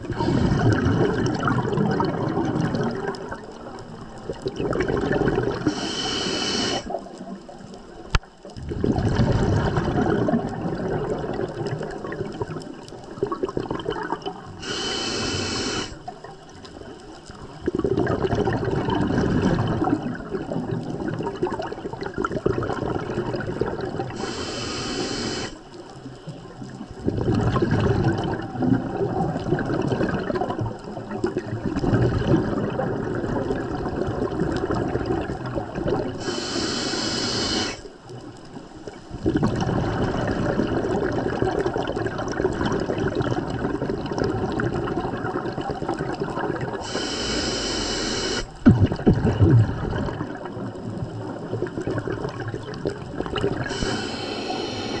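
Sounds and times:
exhaled bubbles underwater: 0.0 - 55.0
regulator hiss on inhale: 5.6 - 7.0, 14.6 - 16.1, 24.1 - 25.7, 36.2 - 37.9, 46.8 - 48.6, 53.6 - 55.0.

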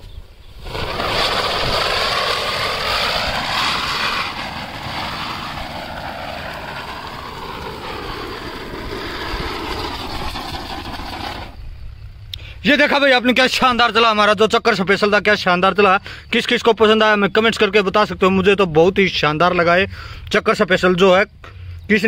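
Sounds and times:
ground-spinner firework hissing: 0.0 - 12.8.

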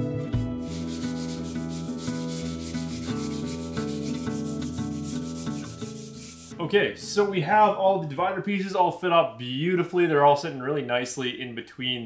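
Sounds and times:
background music: 0.0 - 7.4
sandpaper sanding wood: 0.6 - 6.6.

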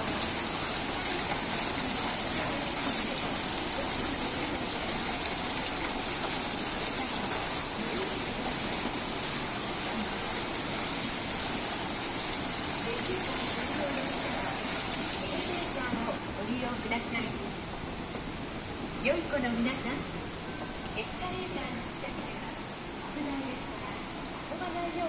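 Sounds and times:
water splashing between metal basins: 0.0 - 16.4.

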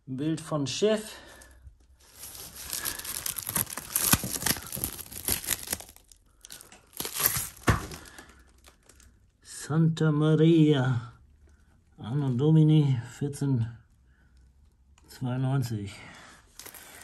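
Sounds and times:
plastic wrap crinkling: 2.0 - 9.1, 16.5 - 17.0.

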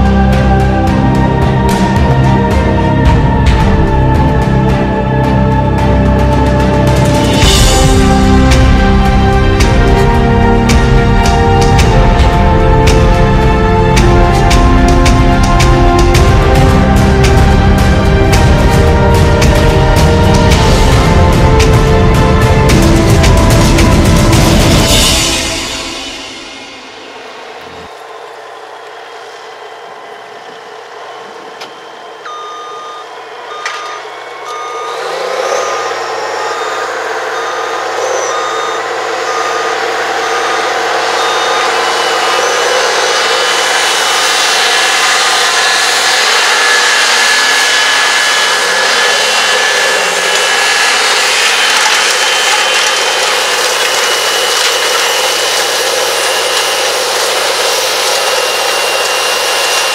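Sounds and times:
tractor engine running: 0.0 - 28.4, 30.4 - 59.9
electronic alarm beeping: 31.2 - 43.3.

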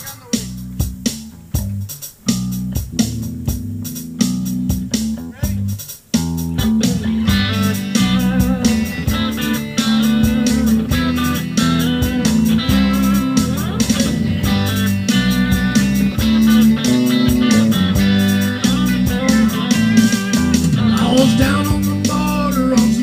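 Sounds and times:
live band playing: 0.0 - 23.0
accordion: 7.2 - 22.0.

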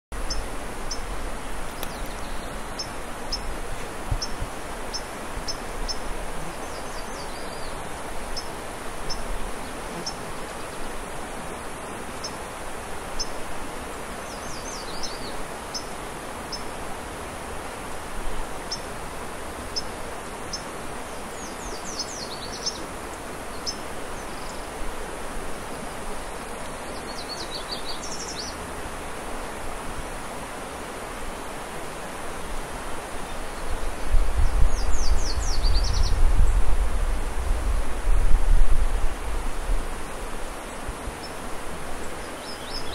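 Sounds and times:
small birds chirping: 1.7 - 10.9, 14.0 - 16.6, 19.7 - 24.8, 25.7 - 28.7, 33.2 - 36.6, 42.0 - 42.9.

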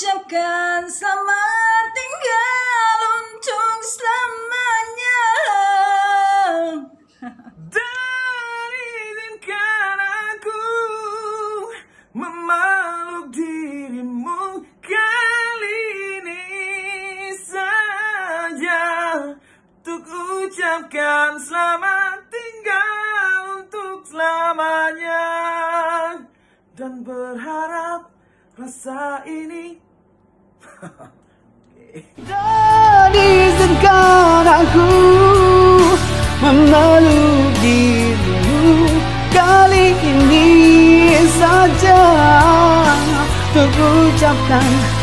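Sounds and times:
man singing a pop ballad: 7.7 - 29.8, 32.2 - 45.0
singer breathing: 11.7 - 12.2, 19.4 - 19.8, 26.3 - 26.8, 28.1 - 28.6.

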